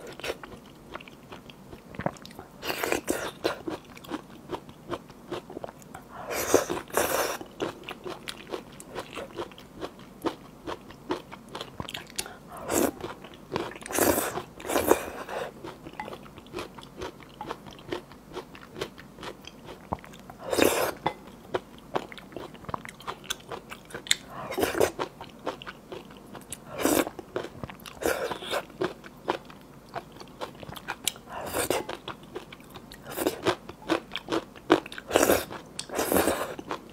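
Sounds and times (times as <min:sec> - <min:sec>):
person slurping noodles: 0:20.4 - 0:21.0, 0:26.7 - 0:27.1, 0:35.1 - 0:36.6.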